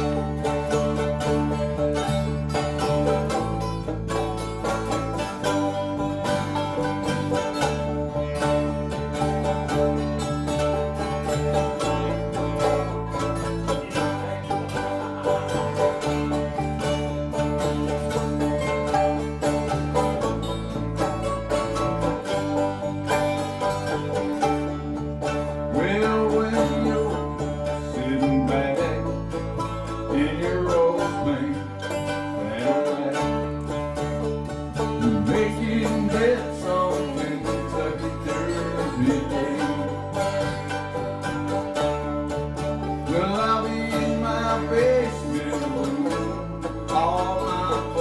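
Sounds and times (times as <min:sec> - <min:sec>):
acoustic guitar strumming: 0:00.0 - 0:48.0
banjo picking: 0:00.0 - 0:48.0
electric guitar: 0:00.0 - 0:48.0
low bass notes: 0:00.0 - 0:48.0
man singing: 0:25.7 - 0:29.4, 0:30.1 - 0:33.8, 0:35.0 - 0:40.4, 0:43.0 - 0:48.0.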